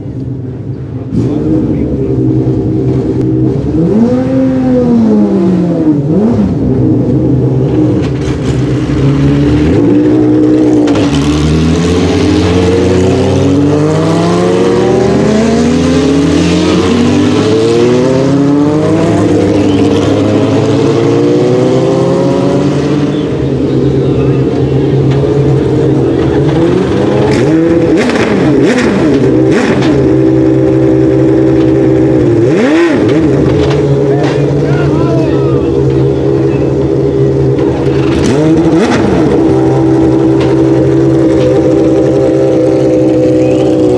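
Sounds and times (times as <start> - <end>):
race car engines revving: 0.0 - 43.9
steady engine hum: 0.0 - 43.9.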